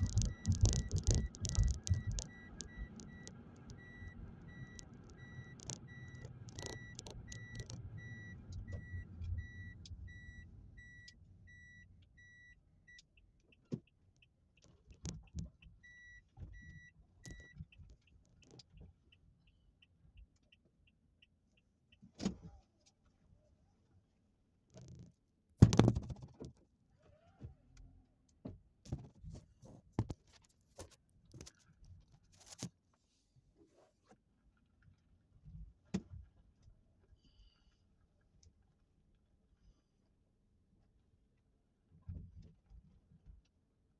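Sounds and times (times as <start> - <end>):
clicks and knocks: 0.0 - 8.9
faint fast ticking: 0.0 - 10.0
engine and road noise: 0.0 - 11.8.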